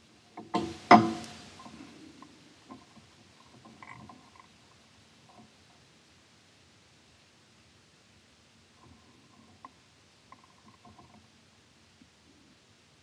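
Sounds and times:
faint clicks and taps: 0.3 - 5.8, 8.8 - 11.3.

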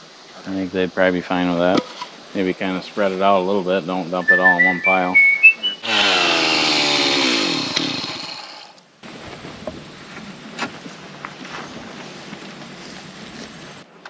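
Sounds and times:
chainsaw revving and winding down: 5.8 - 8.8.

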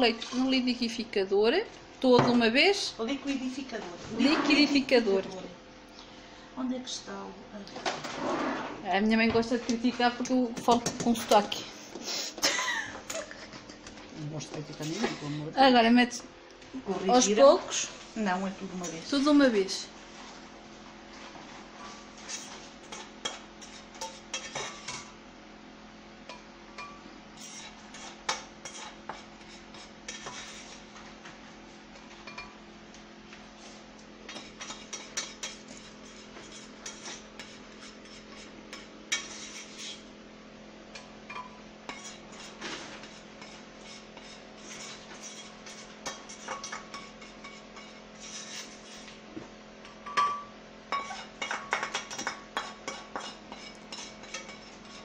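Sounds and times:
steady low hum: 0.0 - 55.0
spoon scraping a frying pan: 21.8 - 25.2, 26.3 - 30.9, 34.3 - 40.1, 41.0 - 49.2, 50.1 - 55.0.

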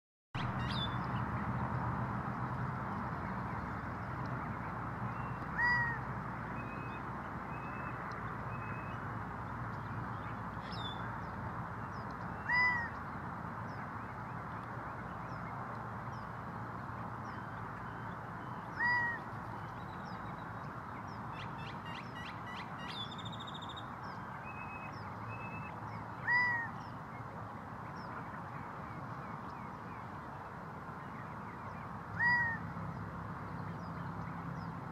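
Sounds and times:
quail calling: 5.6 - 6.0, 12.4 - 12.9, 18.7 - 19.2, 26.2 - 26.7, 32.2 - 32.6.

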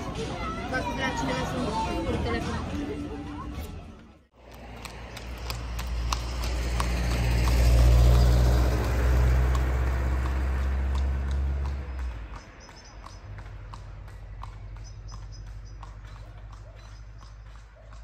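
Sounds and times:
vehicle engine humming: 0.0 - 18.0
horse hooves clip-clopping on asphalt: 4.4 - 18.0.

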